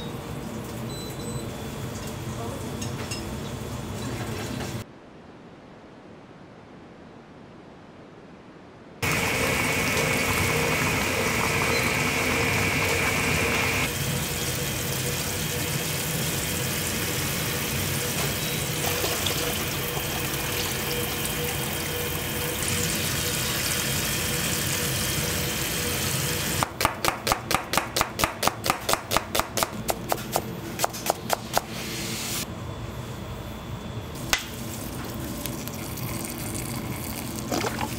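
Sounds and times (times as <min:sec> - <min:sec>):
tap water running: 0:09.0 - 0:26.8, 0:34.2 - 0:37.9.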